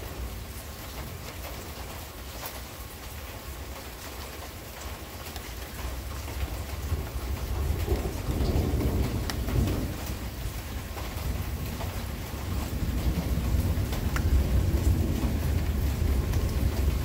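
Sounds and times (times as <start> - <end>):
steady rain: 0.0 - 17.0
sharp raindrop ticks: 0.4 - 17.0
thunder rumbling: 6.4 - 17.0.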